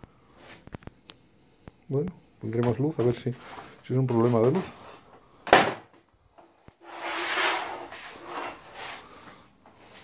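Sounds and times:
objects scraping on metal workbench: 6.8s - 9.2s.

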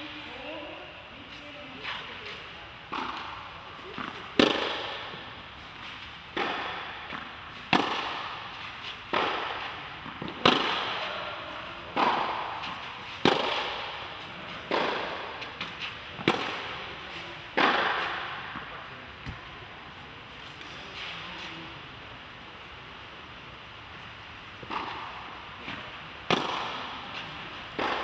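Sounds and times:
tennis racket hitting ball: 2.9s - 19.4s, 24.6s - 28.0s.

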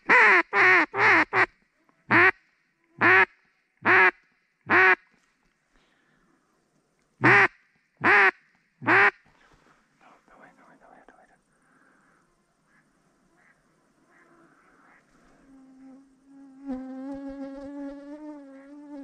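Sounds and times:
duck quacking: 2.1s - 2.4s, 3.0s - 5.0s, 7.2s - 9.2s, 12.7s - 15.1s.

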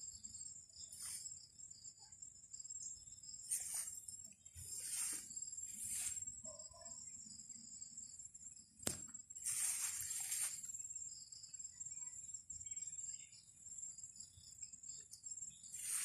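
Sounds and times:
crickets trilling: 0.0s - 16.0s
rustling: 3.5s - 4.0s, 4.6s - 6.3s, 9.4s - 10.7s.

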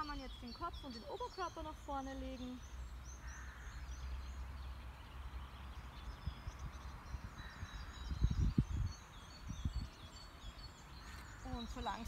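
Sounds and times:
small birds chirping and singing: 0.0s - 12.0s
wind rumble on microphone: 4.2s - 12.0s.

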